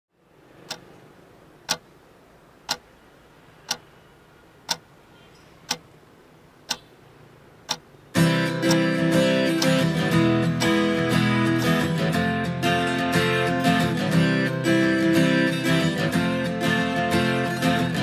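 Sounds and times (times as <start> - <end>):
clock ticking: 0.6 - 1.0, 1.6 - 1.9, 2.6 - 2.9, 3.6 - 3.9, 4.6 - 4.9, 5.6 - 6.0, 6.6 - 6.9, 7.6 - 11.9
strummed acoustic guitar music: 8.1 - 18.0.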